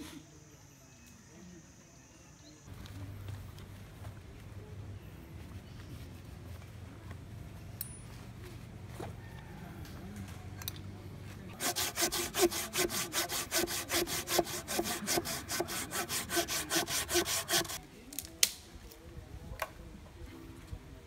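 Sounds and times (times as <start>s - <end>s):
hand saw cutting log: 11.6s - 17.8s.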